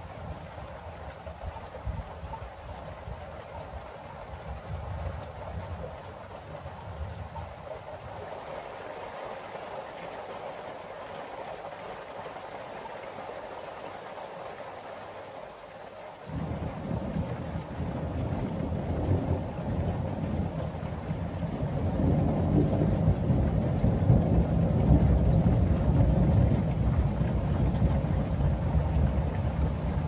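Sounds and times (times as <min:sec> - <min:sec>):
steady rain: 0:00.0 - 0:30.0
thunder rumbling: 0:16.3 - 0:30.0.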